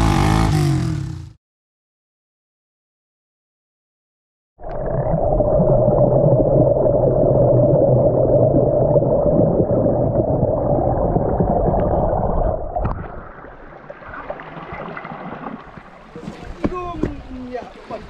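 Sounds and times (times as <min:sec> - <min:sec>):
stream heard underwater: 0:04.6 - 0:18.0.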